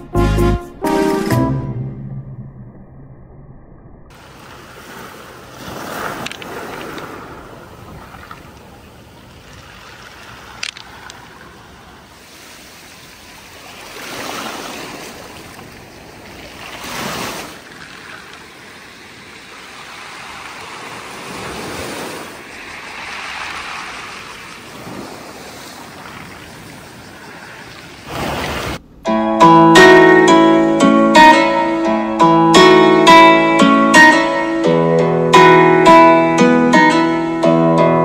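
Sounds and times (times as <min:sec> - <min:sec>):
waves washing over pebbles: 0:04.1 - 0:28.8.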